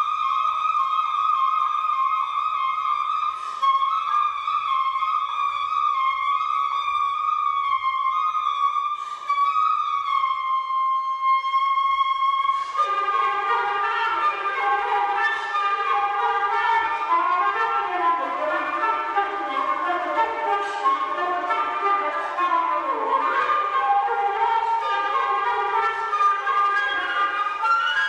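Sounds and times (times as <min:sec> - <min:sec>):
flute holding high notes: 0:00.0 - 0:28.0
short breaths: 0:03.3 - 0:03.8, 0:08.9 - 0:09.4, 0:12.5 - 0:12.9.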